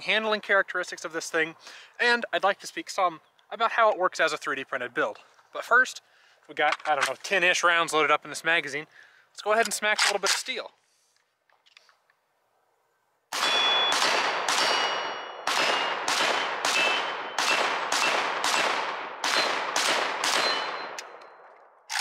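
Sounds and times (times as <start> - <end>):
steel targets pinging: 13.3 - 18.2
pistol gunshots with echo: 13.3 - 21.4.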